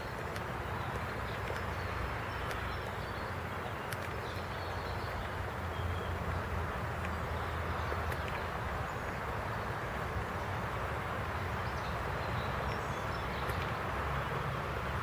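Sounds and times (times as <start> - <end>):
steady rain hiss: 0.0 - 15.0
faint ticks: 0.1 - 2.8, 8.0 - 8.5.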